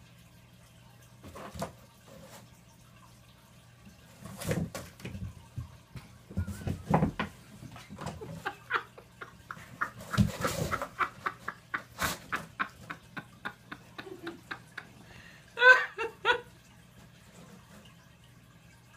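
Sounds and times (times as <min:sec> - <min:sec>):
cat scratching cardboard box: 0:09.9 - 0:11.2.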